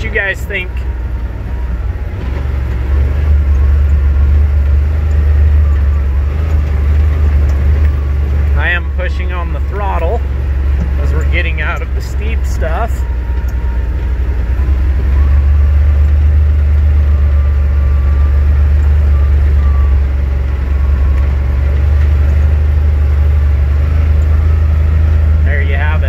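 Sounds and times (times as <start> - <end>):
engine droning: 0.0 - 26.0.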